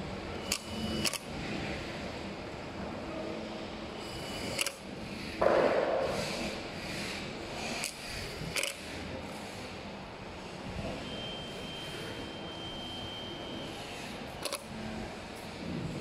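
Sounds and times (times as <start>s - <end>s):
sharp tool clicks: 0.4s - 1.3s, 4.3s - 4.9s, 7.8s - 8.8s, 14.4s - 14.7s.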